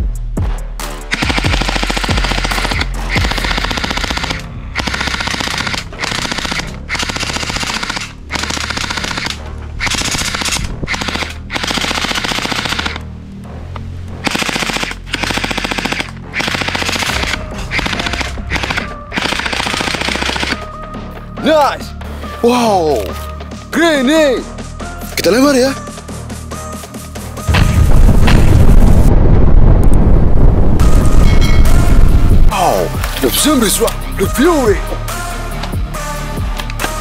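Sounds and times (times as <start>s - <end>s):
gel blaster firing bursts: 1.1s - 13.0s, 14.2s - 20.6s.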